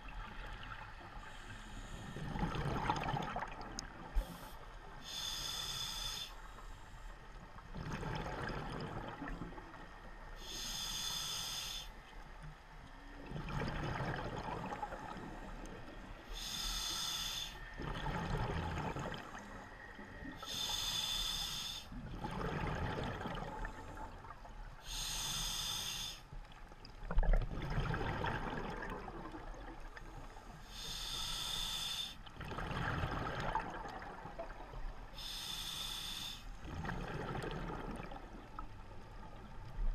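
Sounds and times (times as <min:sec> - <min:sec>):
regulator hissing inhale: 0:01.2 - 0:02.4, 0:04.2 - 0:07.2, 0:10.4 - 0:12.0, 0:16.2 - 0:17.8, 0:20.3 - 0:22.0, 0:24.8 - 0:26.4, 0:30.0 - 0:32.3, 0:35.1 - 0:36.6
exhaled bubbles burbling: 0:02.3 - 0:03.9, 0:07.8 - 0:09.6, 0:13.3 - 0:15.2, 0:17.8 - 0:19.4, 0:22.1 - 0:23.7, 0:27.1 - 0:29.8, 0:32.4 - 0:34.6, 0:36.6 - 0:38.6.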